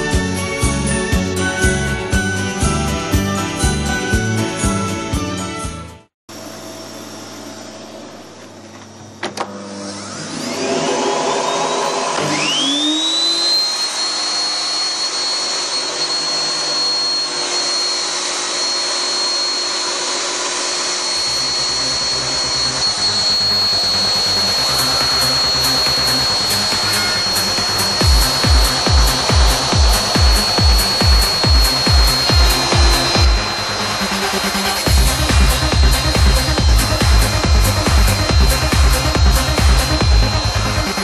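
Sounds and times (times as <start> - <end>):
electric motor whining: 6.9 - 41.0
low hum: 21.0 - 41.0.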